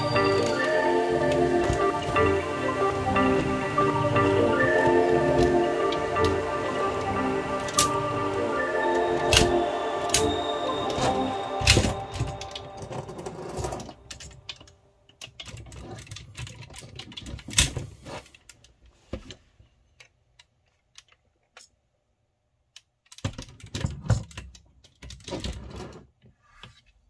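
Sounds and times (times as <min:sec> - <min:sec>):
plastic toy parts clicking: 0:11.6 - 0:18.8, 0:19.9 - 0:21.8, 0:22.7 - 0:25.6.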